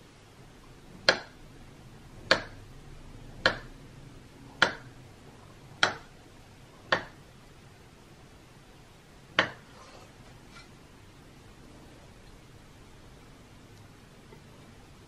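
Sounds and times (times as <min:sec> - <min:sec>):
knife tapping on wooden board: 0:01.0 - 0:01.3, 0:02.3 - 0:02.6, 0:03.4 - 0:03.7, 0:04.6 - 0:04.9, 0:05.8 - 0:06.1, 0:06.9 - 0:07.2, 0:09.4 - 0:09.7.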